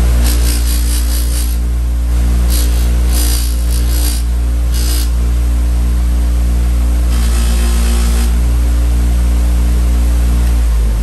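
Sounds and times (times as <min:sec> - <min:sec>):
blade hissing on buffing wheel: 0:00.0 - 0:01.6, 0:02.5 - 0:05.2
bench buffer motor humming: 0:00.0 - 0:08.8.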